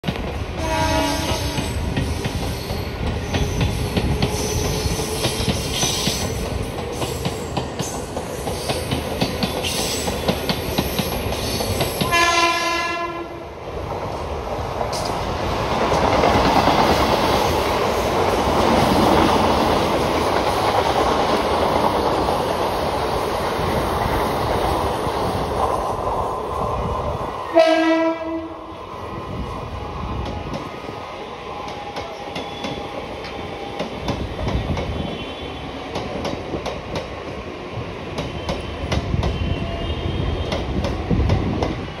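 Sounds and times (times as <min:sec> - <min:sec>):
train rushing rumble: 0:00.0 - 0:42.0
train horn: 0:00.6 - 0:01.8, 0:12.0 - 0:13.5, 0:27.5 - 0:28.7, 0:35.0 - 0:35.8, 0:38.4 - 0:40.8.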